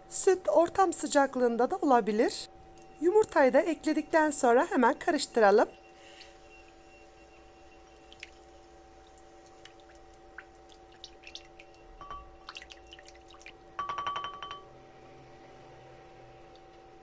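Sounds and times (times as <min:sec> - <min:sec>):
faint background music: 0:00.0 - 0:17.0
clinks against glass: 0:12.0 - 0:12.4, 0:13.8 - 0:14.7.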